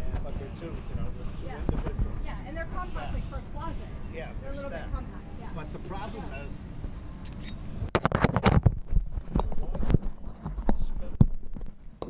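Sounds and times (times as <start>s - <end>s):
camera handling knocks and rubbing: 7.9s - 11.8s.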